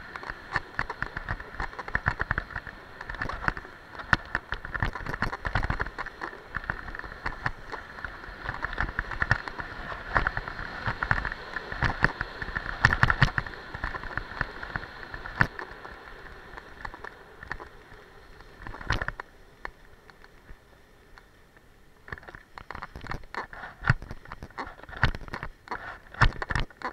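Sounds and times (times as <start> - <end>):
sharp clicks and knocks: 0.0 - 17.8, 18.4 - 21.3, 22.1 - 26.9
skis hissing and scraping on snow: 5.8 - 18.6.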